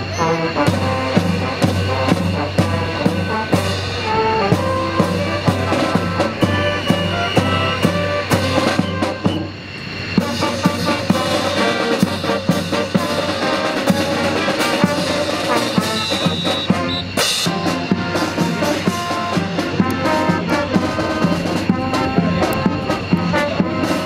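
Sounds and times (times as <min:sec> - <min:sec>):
military marching band playing: 0:00.0 - 0:24.0.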